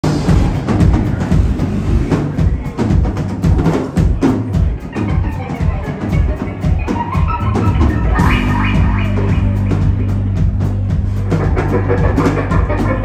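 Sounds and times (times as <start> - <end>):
bass guitar: 0.0 - 13.0
drum kit: 0.0 - 13.0
keyboards: 0.0 - 13.0
higher melodic line: 4.9 - 13.0.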